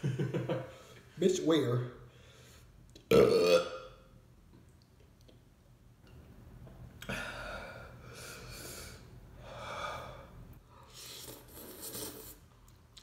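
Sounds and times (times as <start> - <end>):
man breathing hard and gasping: 7.0 - 10.4.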